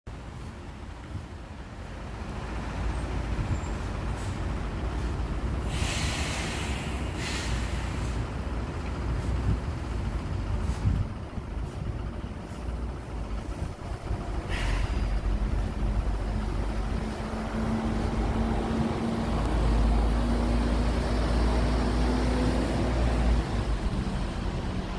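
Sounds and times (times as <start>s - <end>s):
traffic rumble: 0.1s - 24.9s
wind: 0.1s - 24.9s
loud hiss: 5.6s - 8.3s, 14.4s - 15.4s.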